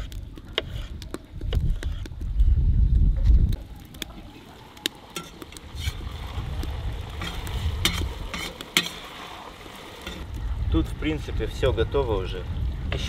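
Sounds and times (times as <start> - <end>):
meat sizzling in a pot: 3.6 - 11.2.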